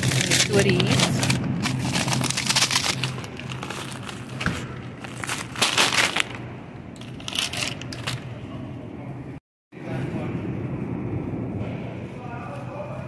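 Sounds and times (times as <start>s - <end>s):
items rustling and clattering: 0.0s - 8.4s.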